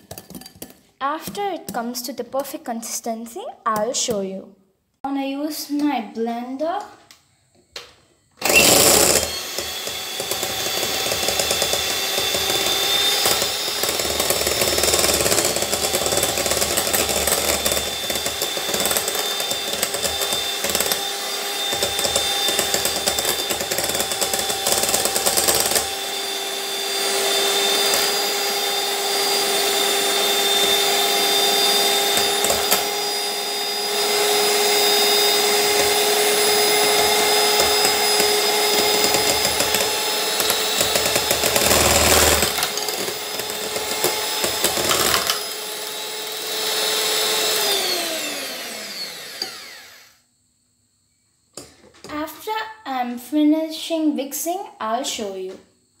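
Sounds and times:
electric hand mixer whining: 8.4 - 50.3.

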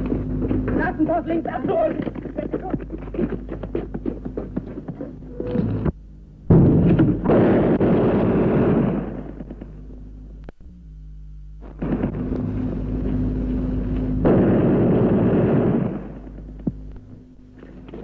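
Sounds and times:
rumbling gunfire burst: 6.4 - 9.9, 11.6 - 13.0, 13.6 - 16.6
explosion blast: 6.5 - 9.7, 14.2 - 16.4.

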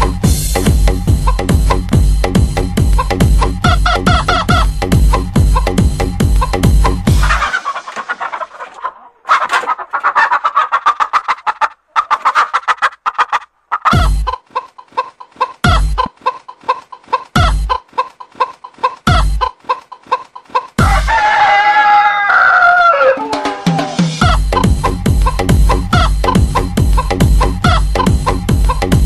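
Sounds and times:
music with low drum beat: 0.0 - 7.5, 13.9 - 14.3, 15.6 - 16.1, 17.4 - 17.8, 19.1 - 19.5, 20.8 - 21.2, 23.6 - 29.0
chicken clucking: 1.2 - 2.0, 2.8 - 29.0
rooster crowing: 20.8 - 24.4.

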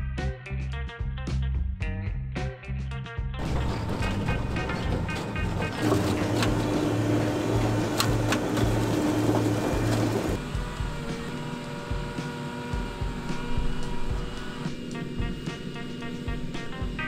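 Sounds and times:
machine mechanical hum: 3.4 - 17.0.

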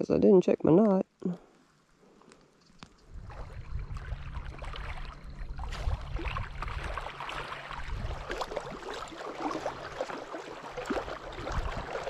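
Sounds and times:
waves lapping against rocks: 2.8 - 12.0
wind buffeting microphone: 3.0 - 10.0, 10.7 - 12.0.

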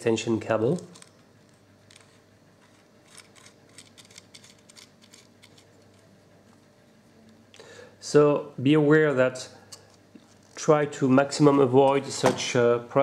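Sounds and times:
connector nut clicking and scraping: 0.7 - 6.0.

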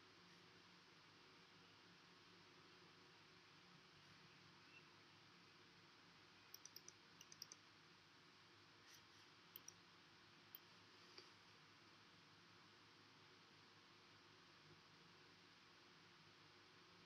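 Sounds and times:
computer mouse clicks: 6.5 - 7.6, 8.9 - 9.8.

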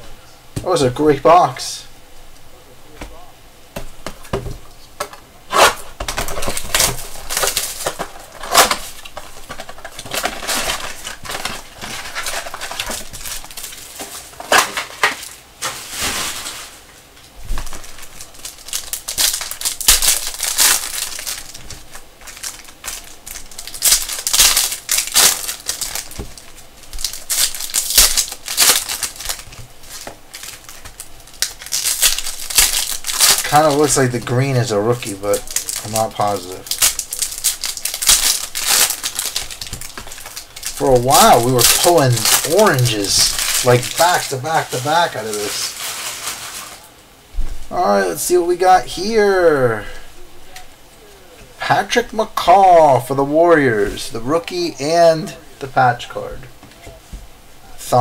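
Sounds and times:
foil wrappers crinkling and tearing: 4.2 - 47.0.

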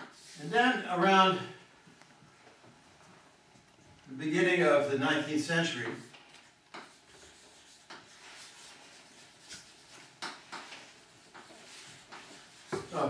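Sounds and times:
chalk tapping: 5.8 - 13.0
chalk scratching on blackboard: 6.7 - 13.0.

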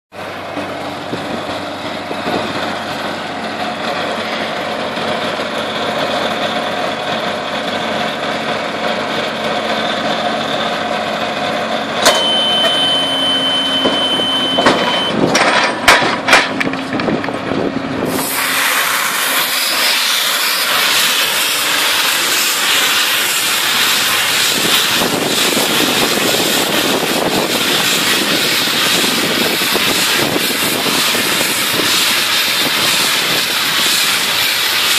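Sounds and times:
baler machine droning: 0.2 - 34.9
steady high tone: 12.0 - 15.2
loud even hiss: 18.0 - 34.9.

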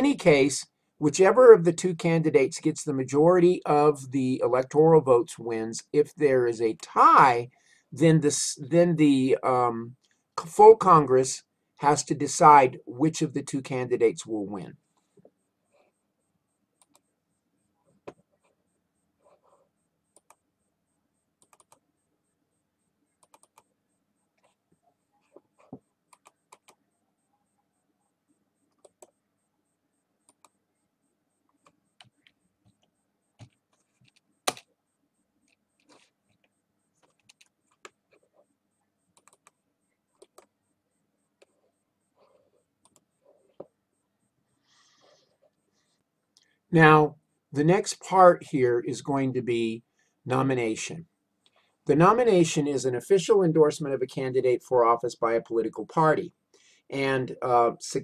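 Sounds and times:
faint steady hum: 0.0 - 58.0
keyboard and mouse clicks: 16.8 - 17.1, 20.1 - 20.4, 21.4 - 21.8, 23.1 - 23.7, 25.2 - 26.8, 28.7 - 29.2, 30.2 - 30.6, 31.5 - 34.8, 35.4 - 38.4, 39.1 - 40.6, 42.2 - 43.7.

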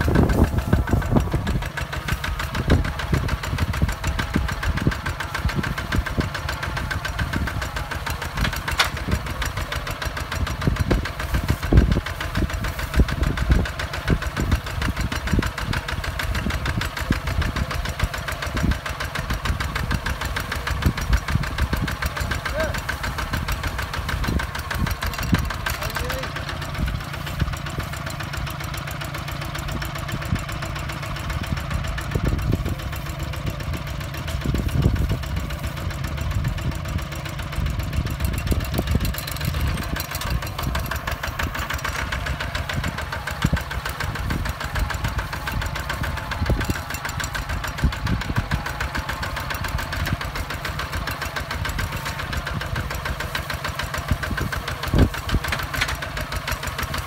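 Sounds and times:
diesel tractor engine chugging: 0.0 - 57.0.

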